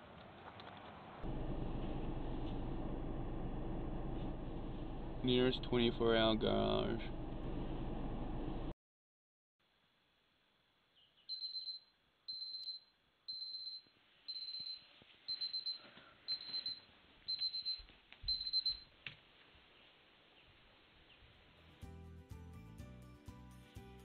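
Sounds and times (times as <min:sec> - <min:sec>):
electronic alarm beeping: 0:11.3 - 0:18.8.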